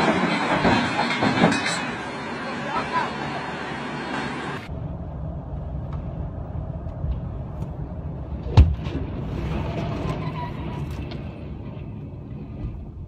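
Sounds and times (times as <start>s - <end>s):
truck crashing: 0.0s - 3.1s
vehicle road rumble: 0.0s - 13.0s.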